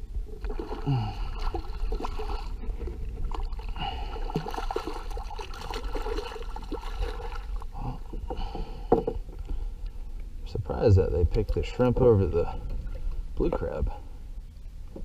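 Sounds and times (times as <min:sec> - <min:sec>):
fish thrashing in water: 0:00.4 - 0:07.8.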